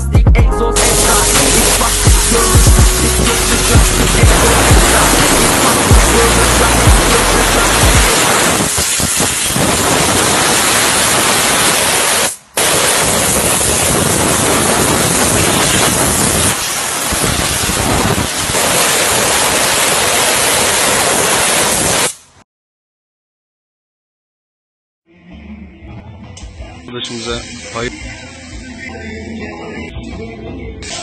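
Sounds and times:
steam pressure washer hissing: 0:00.8 - 0:22.3, 0:27.1 - 0:28.7.

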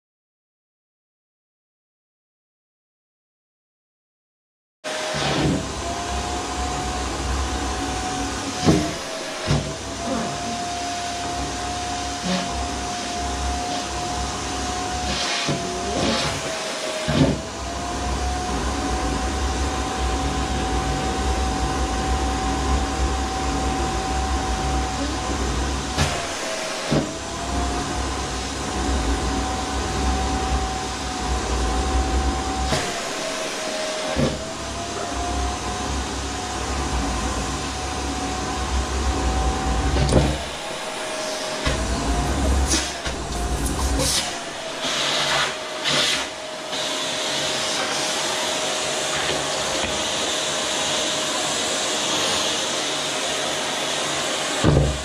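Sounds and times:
vacuum cleaner motor whine: 0:04.9 - 0:55.0
air rushing through hose: 0:40.2 - 0:48.2.

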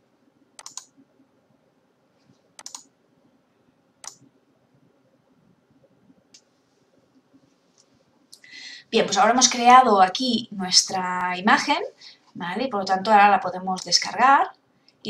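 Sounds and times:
computer mouse clicking: 0:00.6 - 0:01.0, 0:02.6 - 0:02.9, 0:04.0 - 0:04.3.

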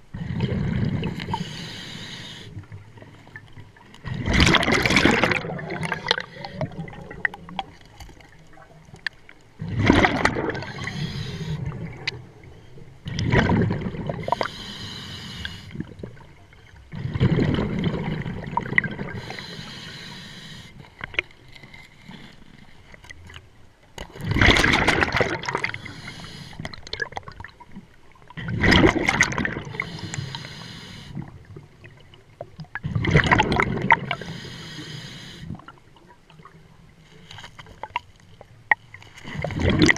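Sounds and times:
regulator inhale hiss: 0:01.3 - 0:02.6, 0:06.0 - 0:06.7, 0:10.6 - 0:11.7, 0:14.2 - 0:15.8, 0:19.2 - 0:20.9, 0:25.6 - 0:26.7, 0:29.7 - 0:31.2, 0:34.1 - 0:35.6
exhaust bubbles rumbling: 0:04.1 - 0:07.6, 0:09.6 - 0:11.0.

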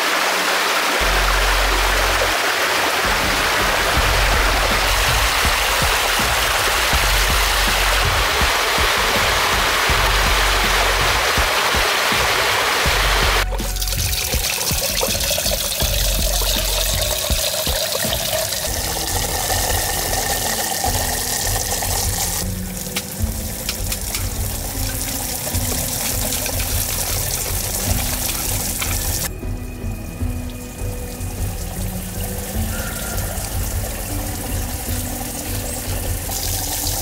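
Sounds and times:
rushing rocky stream: 0:00.0 - 0:29.3.

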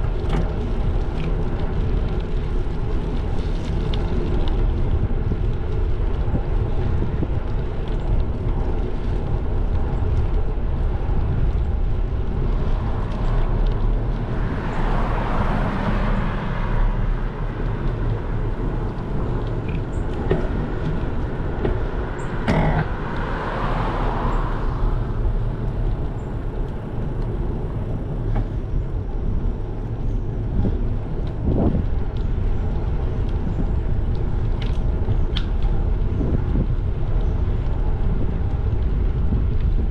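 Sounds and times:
wind and road noise: 0:00.0 - 0:39.9
cars passing: 0:11.9 - 0:35.1.

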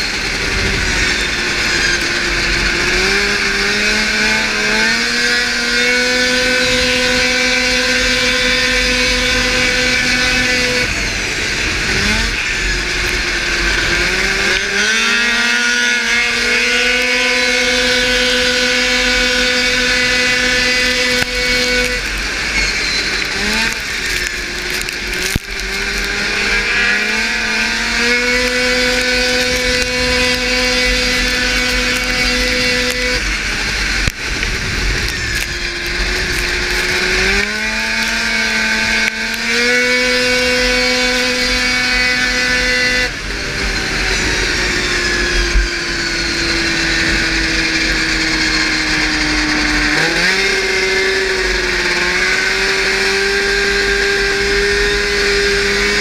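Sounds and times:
snowmobile engine at full throttle: 0:00.0 - 0:56.0
wind on microphone: 0:17.4 - 0:39.4.

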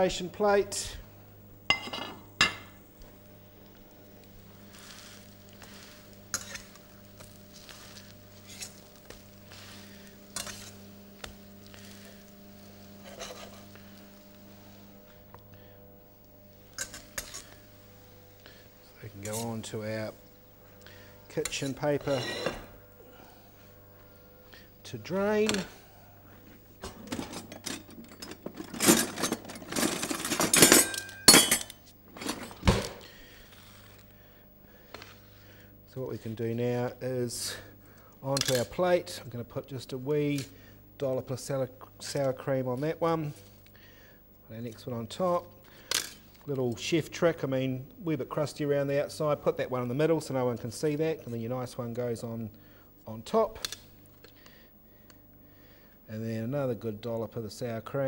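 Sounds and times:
pancakes sizzling in a frying pan: 0:04.3 - 0:14.9
metal spatula scraping a pan: 0:04.7 - 0:13.8
utensils clinking against dishes: 0:06.3 - 0:06.8, 0:26.8 - 0:32.5.

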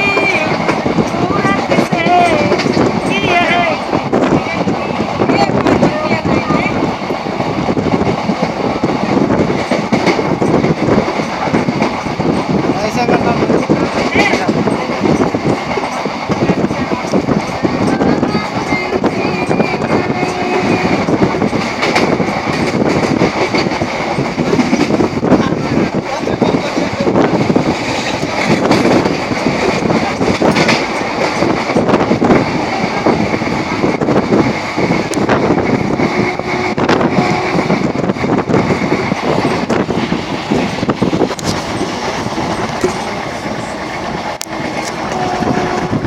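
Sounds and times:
wheels clicking over rail joints: 0:00.0 - 0:36.7
train wheels rumbling and rattling: 0:00.0 - 0:46.0.

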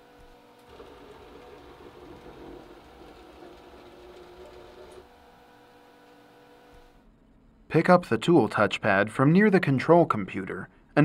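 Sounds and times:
cnc router motors whirring: 0:00.0 - 0:06.9.

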